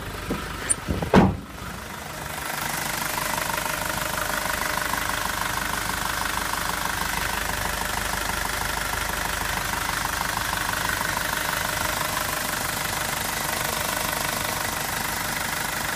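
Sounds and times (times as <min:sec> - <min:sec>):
diesel engine idling: 0:00.0 - 0:15.9.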